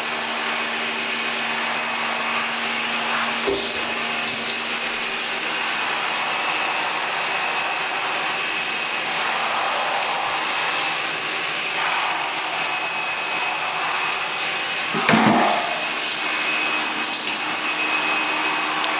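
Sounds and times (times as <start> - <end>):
shower water spraying: 0.0 - 18.9.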